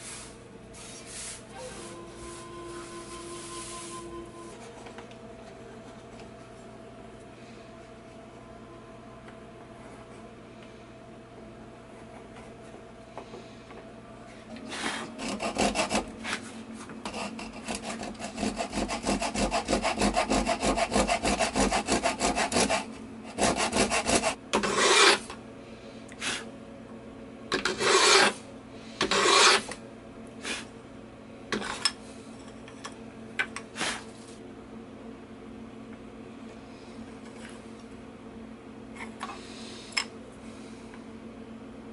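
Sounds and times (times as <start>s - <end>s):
handsaw cutting wood: 14.7s - 16.4s, 17.1s - 25.3s, 27.5s - 28.4s, 29.0s - 29.8s.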